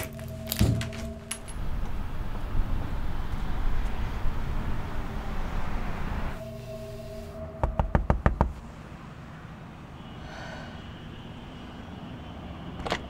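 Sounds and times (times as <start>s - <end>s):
knocking on a door: 7.6s - 8.6s.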